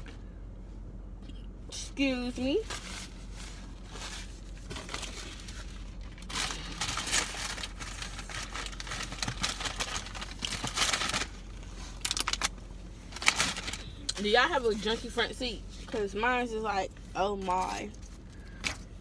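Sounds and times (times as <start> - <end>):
paper napkin crumpling: 2.6 - 12.5.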